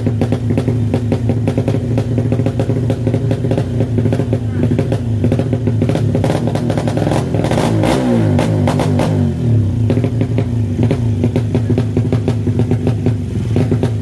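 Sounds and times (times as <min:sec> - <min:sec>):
motorcycle engine idling and revving: 0:00.0 - 0:14.0.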